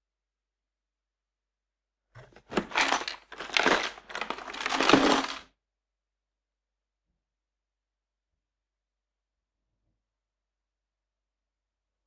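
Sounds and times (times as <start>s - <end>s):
toolbox clattering: 2.2s - 5.5s.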